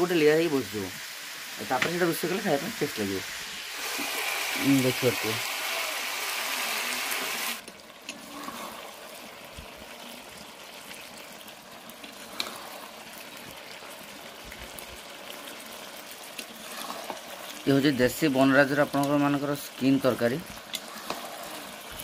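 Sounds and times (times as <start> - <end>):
gravy bubbling and sizzling: 0.0 - 22.0
metal spatula scraping pan: 12.2 - 13.0, 16.4 - 17.3, 20.6 - 22.0.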